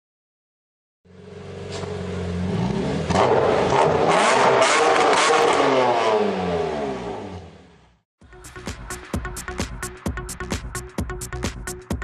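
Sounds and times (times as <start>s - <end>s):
car engine revving: 1.1s - 8.0s.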